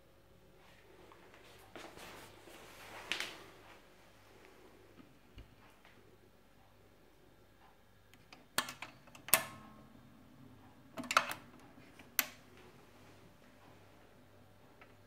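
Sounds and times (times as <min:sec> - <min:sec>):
faint steady hum: 0:00.0 - 0:15.0
record changer mechanism clicking: 0:08.1 - 0:09.8, 0:10.8 - 0:12.5.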